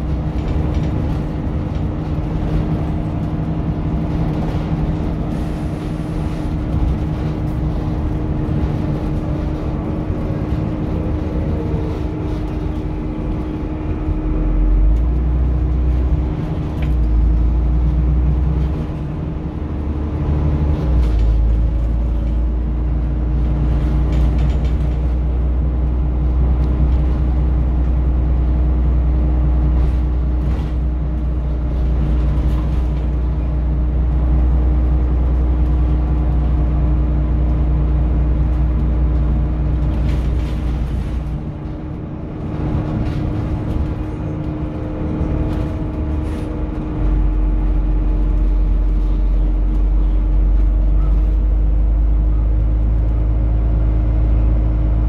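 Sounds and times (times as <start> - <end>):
rattles and clicks: 0.0 - 13.6, 23.4 - 25.4, 38.3 - 51.5
bus engine rumbling: 0.0 - 55.0.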